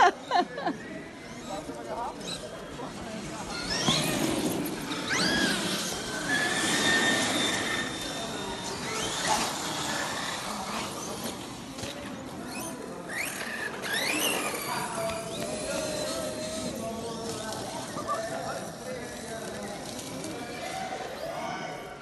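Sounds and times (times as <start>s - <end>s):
electric toy car motors whining: 1.1s - 21.3s.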